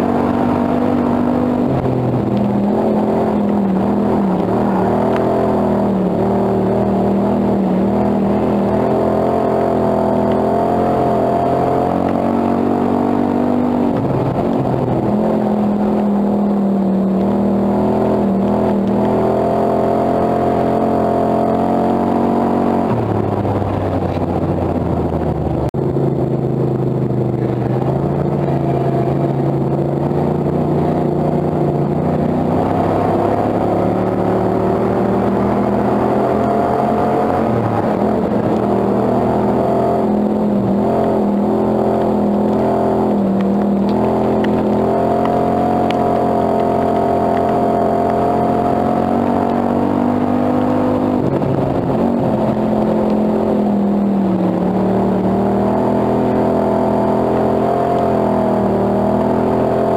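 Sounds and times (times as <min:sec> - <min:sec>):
race car engine running hard: 0:00.0 - 0:59.9.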